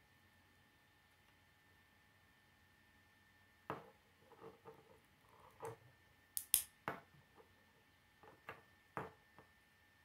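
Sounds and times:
plastic pieces clicking together: 6.4 - 6.7.

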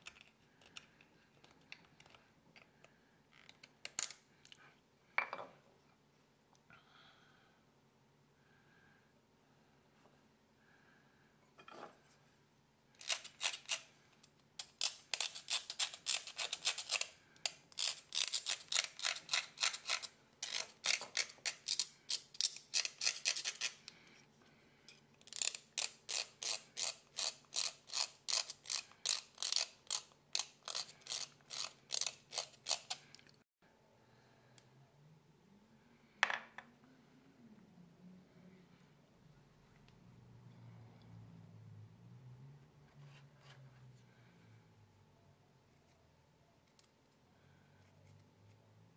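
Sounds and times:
blade scraping nut: 13.0 - 13.9, 14.6 - 23.9, 25.2 - 33.2.

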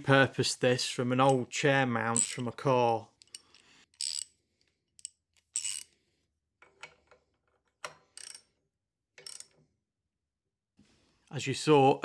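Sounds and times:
ratcheting spanner strokes: 2.2 - 2.4, 3.2 - 4.4, 5.0 - 6.0.

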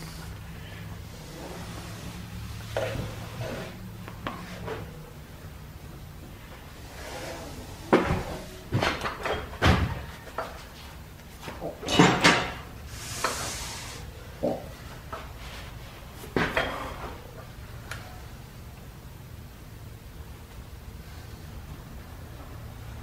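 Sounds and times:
brief hiss: 12.9 - 14.1.

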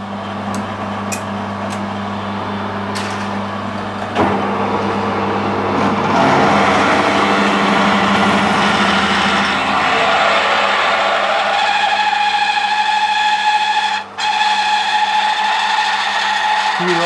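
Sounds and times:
lathe motor humming: 0.0 - 17.0
drill cutting steel: 8.3 - 17.0.

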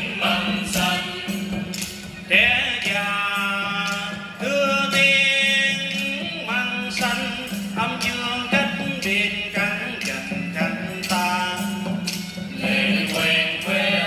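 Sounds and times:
hand percussion strokes: 0.0 - 14.0
sliding folk melody: 0.0 - 14.0.

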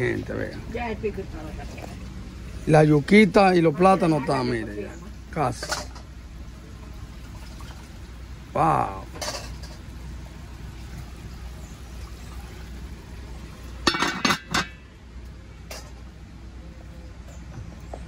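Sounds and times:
metal lid clanking on pan: 13.8 - 14.8.

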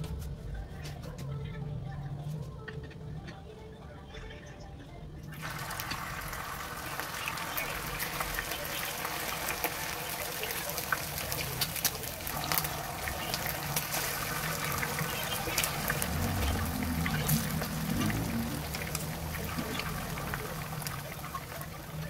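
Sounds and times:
chicken wings deep-frying in oil: 5.3 - 22.0.

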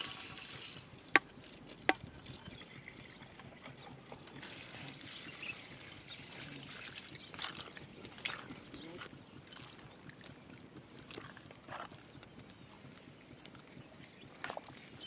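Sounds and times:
water pouring into a pot: 0.0 - 1.0, 2.2 - 9.8.

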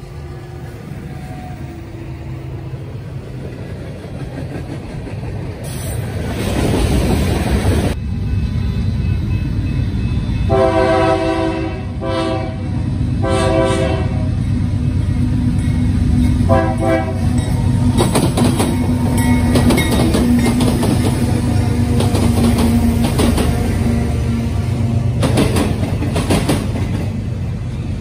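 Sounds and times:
locomotive engine drone: 0.0 - 28.0
locomotive air horn blasts: 10.2 - 14.4, 16.4 - 17.4
wheels clicking over rails: 17.4 - 23.7, 25.1 - 27.2.

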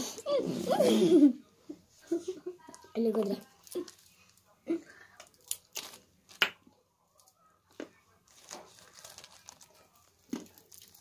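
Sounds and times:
candy wrappers crinkling: 2.7 - 6.5, 8.2 - 11.0
soft wrapper rustling: 3.3 - 4.5, 5.1 - 6.4, 8.1 - 11.0.

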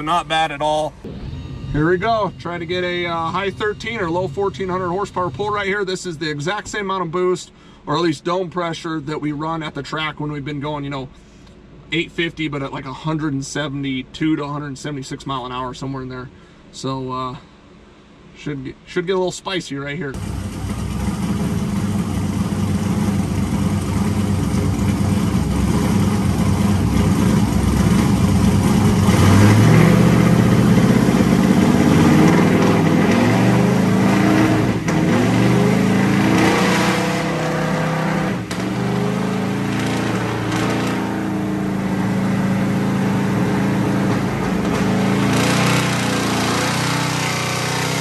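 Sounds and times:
car engine revving: 0.0 - 6.6, 20.2 - 48.0.

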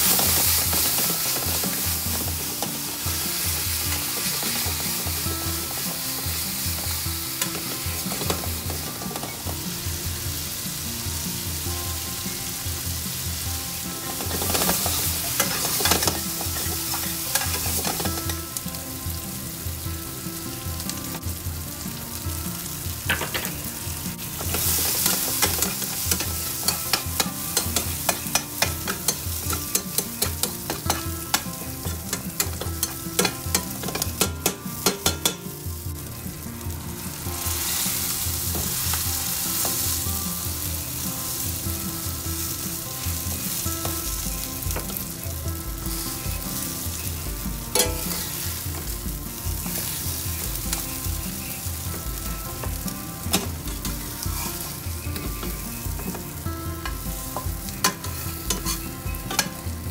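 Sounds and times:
food sizzling in oil: 0.0 - 59.9
spatula scraping pan: 56.8 - 59.6.

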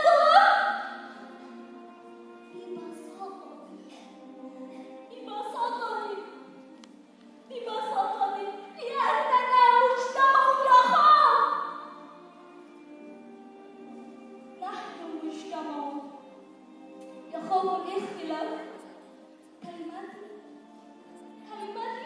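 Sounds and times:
woman singing through a microphone: 0.0 - 1.0, 2.3 - 6.5, 7.5 - 11.8, 21.4 - 22.0.

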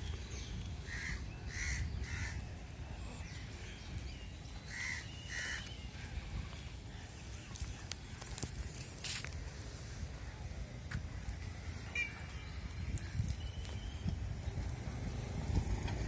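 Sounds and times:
crow cawing: 4.7 - 5.6.

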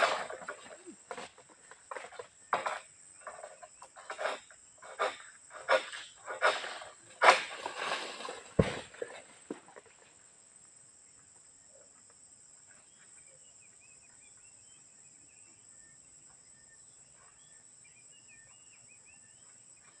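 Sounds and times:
bird chirping: 12.7 - 20.0.

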